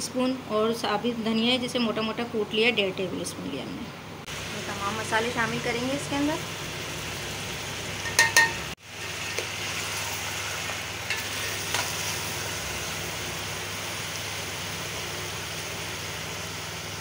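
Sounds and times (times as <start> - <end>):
chicken sizzling in a pot: 4.3 - 17.0.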